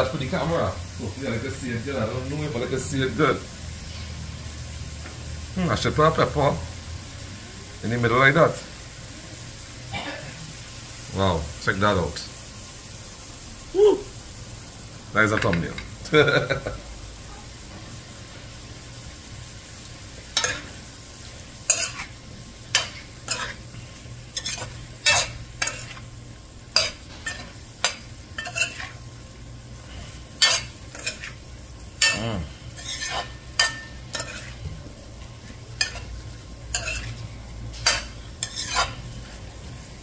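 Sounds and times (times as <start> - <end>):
metal spoon scraping a metal pot: 21.7 - 22.1, 22.7 - 23.6, 24.4 - 26.0, 26.7 - 29.0, 30.4 - 31.4, 32.0 - 34.6, 36.7 - 37.2, 37.8 - 39.1.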